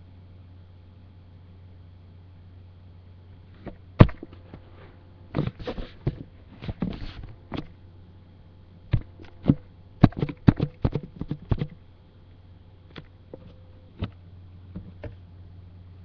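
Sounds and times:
low electrical hum: 0.0s - 16.0s
sharp clicks and knocks: 8.9s - 11.8s, 12.9s - 15.2s.

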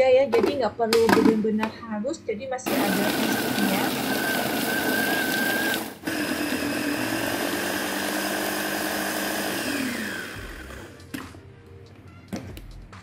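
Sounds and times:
food chopper motor whining: 2.7s - 11.2s.

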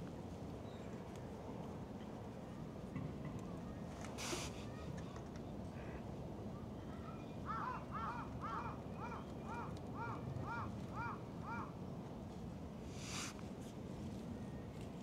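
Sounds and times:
crow cawing: 7.5s - 11.7s.

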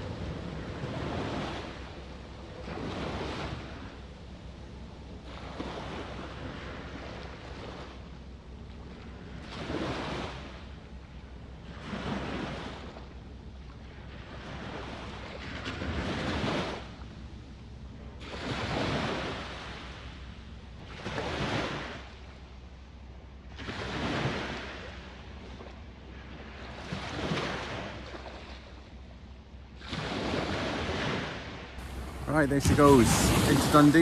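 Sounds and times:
small waves washing onto shore: 0.0s - 8.0s, 8.7s - 10.8s, 18.2s - 20.2s, 29.8s - 34.0s
wind rumble on microphone: 0.0s - 22.5s, 23.1s - 34.0s.

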